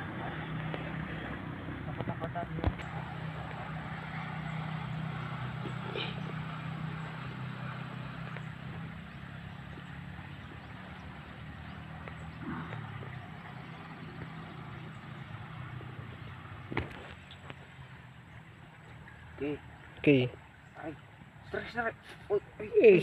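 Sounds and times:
engine hum: 0.0s - 23.0s.

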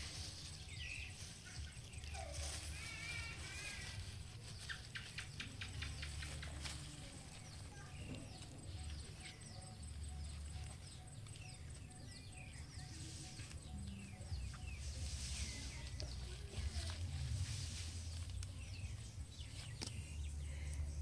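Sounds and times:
small birds chirping: 0.0s - 21.0s
low rumble: 7.2s - 21.0s.

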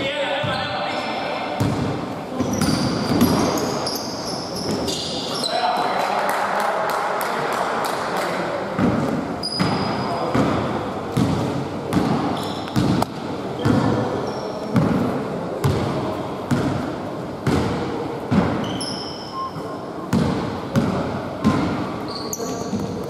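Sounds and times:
general hall noise: 0.0s - 23.0s
sneaker squeaks: 1.6s - 5.8s, 9.4s - 10.7s, 12.3s - 14.9s, 18.3s - 20.5s, 21.4s - 23.0s.

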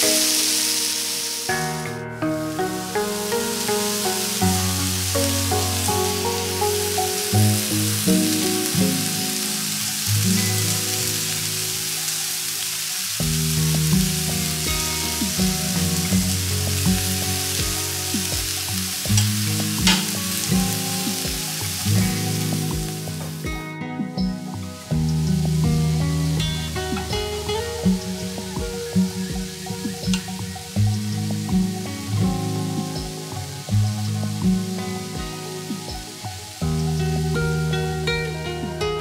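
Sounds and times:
chicken sizzling on grill: 0.0s - 1.6s, 2.5s - 23.4s, 24.8s - 31.8s
background music: 0.0s - 39.0s.

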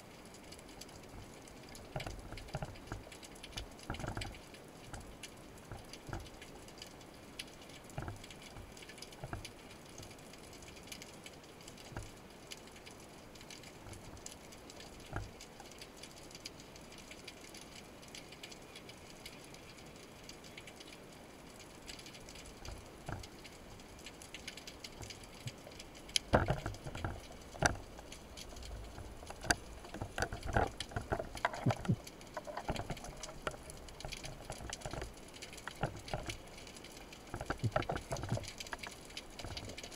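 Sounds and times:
faint underwater crackle: 0.0s - 39.9s
knocks and scrapes: 26.2s - 36.4s.

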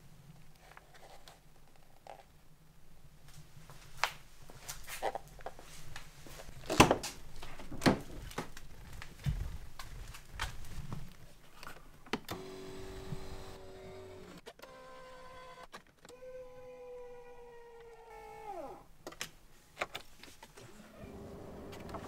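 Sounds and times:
seat motor whirring: 12.3s - 17.2s, 17.8s - 18.8s, 20.6s - 22.0s.

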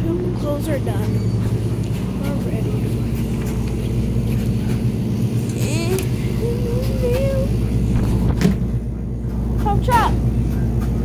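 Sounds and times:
tumble dryers humming: 0.0s - 11.0s
faint voices: 1.9s - 8.3s.

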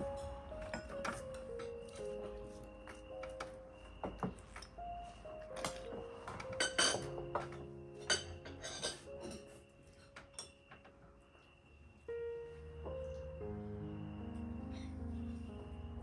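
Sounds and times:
dishes and cutlery clinking: 0.0s - 4.8s, 5.6s - 11.0s
soft background music: 0.0s - 16.0s.

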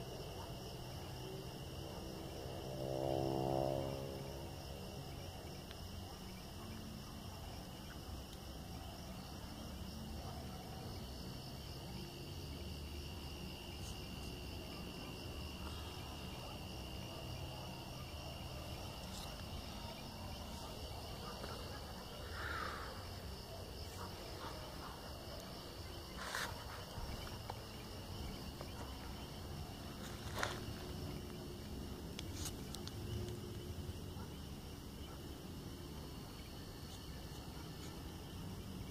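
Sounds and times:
crickets chirping: 0.0s - 38.9s.

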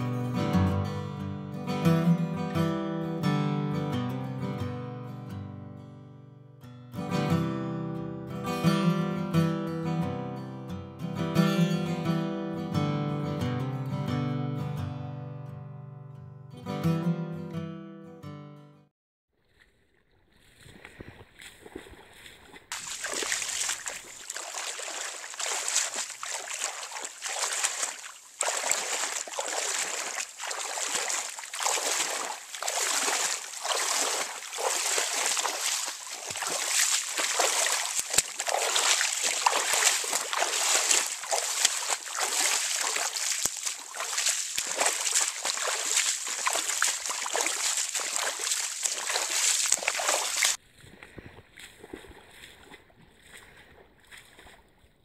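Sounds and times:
feet splashing through water: 19.4s - 55.0s.

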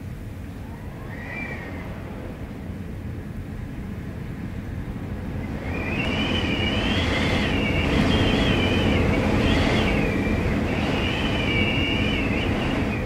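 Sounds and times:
wind gust rumbling: 0.0s - 13.0s
high wind whistle: 0.5s - 13.0s.

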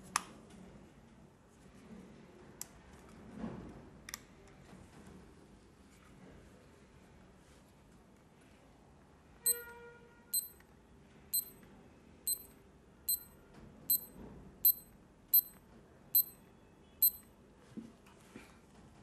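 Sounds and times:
alarm clock beeping: 9.5s - 9.7s, 10.4s - 10.6s, 12.3s - 12.5s, 13.1s - 13.3s, 13.9s - 14.8s.

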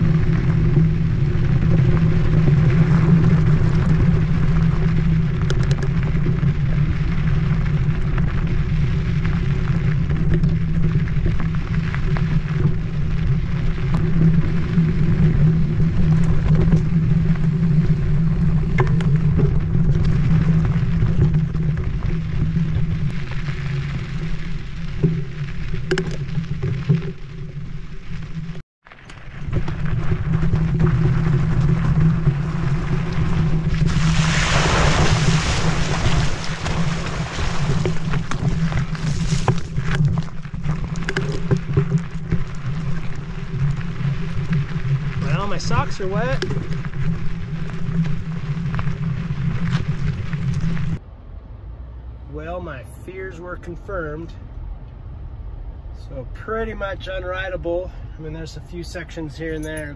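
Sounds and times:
wind on microphone: 0.0s - 28.6s, 29.4s - 51.0s
bike rolling on dirt trail: 0.0s - 51.1s
bike clicks and knocks: 5.4s - 6.4s.

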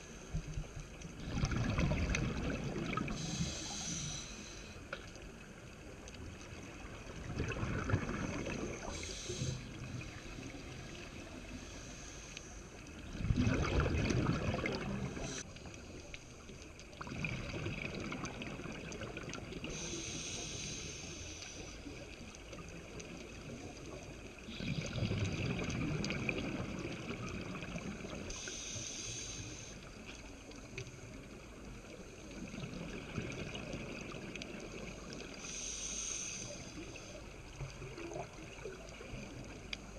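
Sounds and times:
regulator inhale hiss: 0.0s - 0.9s, 3.0s - 5.3s, 8.1s - 13.0s, 15.0s - 16.1s, 19.6s - 22.2s, 28.0s - 30.6s, 35.2s - 38.0s
exhaled bubbles gurgling: 0.0s - 4.3s, 5.2s - 11.8s, 12.9s - 21.0s, 21.8s - 28.6s, 30.4s - 39.9s.

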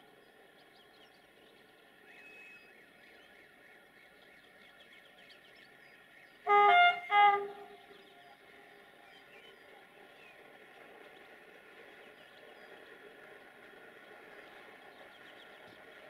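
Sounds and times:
train rumble: 0.0s - 16.0s
locomotive horn blasts: 6.5s - 8.0s.

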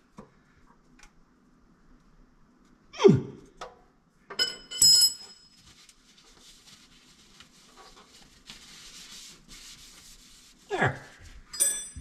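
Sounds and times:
metallic clink: 4.4s - 5.6s, 11.5s - 12.0s
faint rustling and scraping: 5.3s - 11.6s.

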